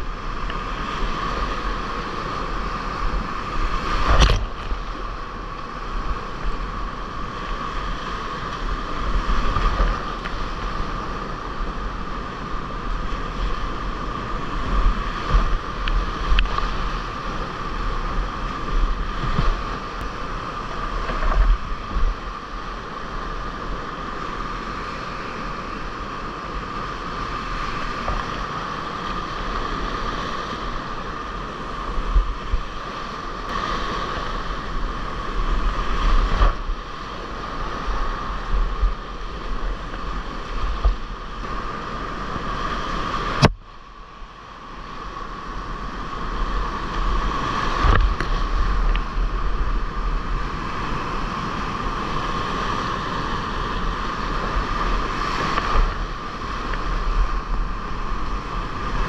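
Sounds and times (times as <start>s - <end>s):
waves splashing over boat: 0.0s - 59.0s.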